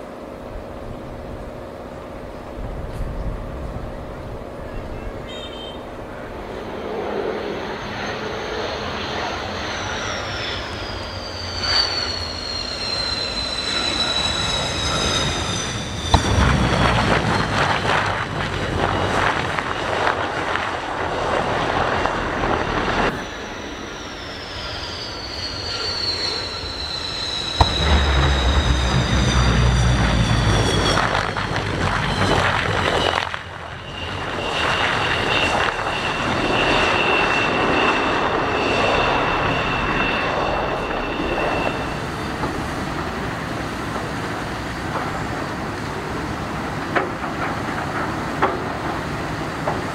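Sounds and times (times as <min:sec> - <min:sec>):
jet engines whining: 0:00.0 - 0:49.9
loud rushing rumble: 0:05.9 - 0:45.4.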